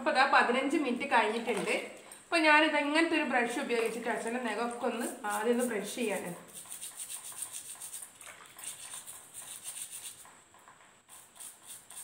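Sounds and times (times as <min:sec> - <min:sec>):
brush scrubbing feet: 0:05.2 - 0:10.3.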